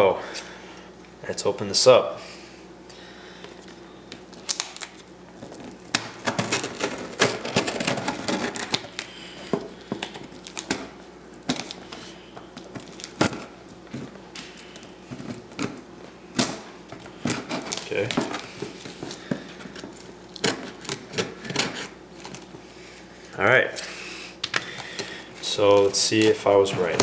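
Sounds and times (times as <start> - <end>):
scissors snipping packing tape: 25.8 - 27.0.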